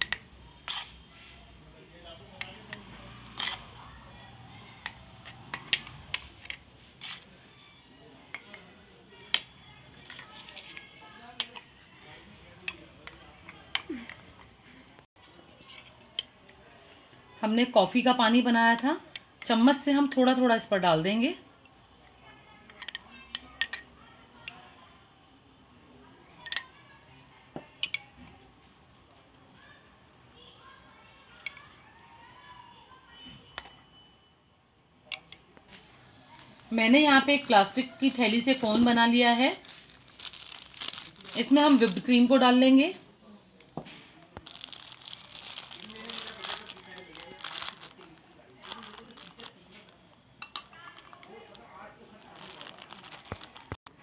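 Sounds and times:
spoon clinking on glass: 0.0s - 0.3s, 22.7s - 23.9s, 26.4s - 26.7s, 33.5s - 34.1s
metal spoon clinking against cups: 0.0s - 0.8s, 2.3s - 3.6s, 4.8s - 6.7s, 8.3s - 11.8s, 12.6s - 14.6s, 18.7s - 20.4s, 22.7s - 24.6s, 26.4s - 26.8s, 27.8s - 28.1s, 33.4s - 34.1s, 50.4s - 51.2s.

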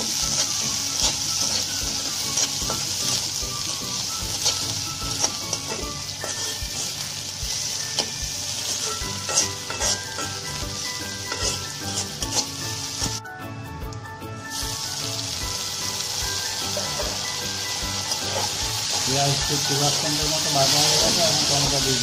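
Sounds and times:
spatula scraping and knocking pan: 0.0s - 7.0s, 7.9s - 13.2s
onions sizzling in hot oil: 0.0s - 13.2s, 14.5s - 22.0s.

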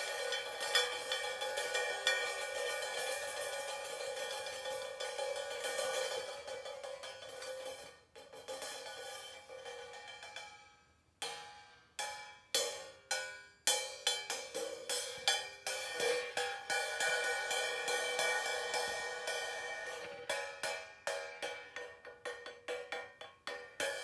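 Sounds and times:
cymbal strikes ringing: 11.5s - 22.5s.

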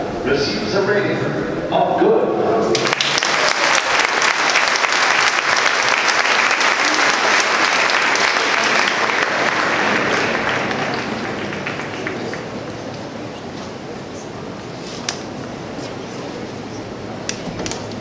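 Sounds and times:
stadium crowd applauding: 2.7s - 13.3s.

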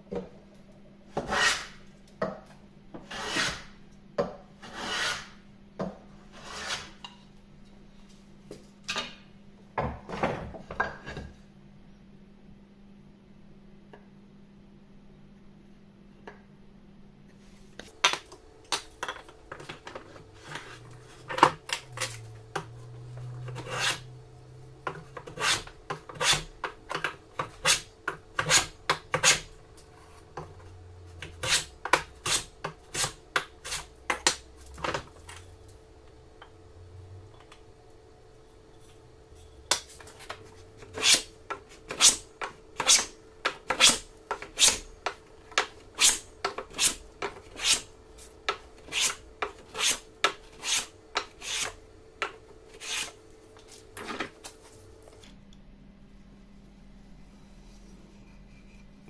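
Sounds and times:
hand plane cutting wood: 1.2s - 1.8s, 3.0s - 3.7s, 4.6s - 5.4s, 6.4s - 6.9s, 20.3s - 24.1s, 24.9s - 29.6s, 31.2s - 34.4s, 40.2s - 44.9s, 45.6s - 47.9s, 48.5s - 51.8s, 52.7s - 53.2s.

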